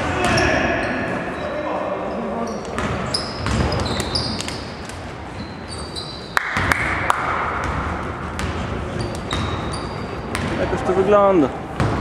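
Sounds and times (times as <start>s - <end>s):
sneakers squeaking on court: 0.2s - 6.4s, 7.6s - 10.6s
basketball bouncing: 2.7s - 4.2s, 6.5s - 9.7s, 10.3s - 10.6s, 11.8s - 12.0s.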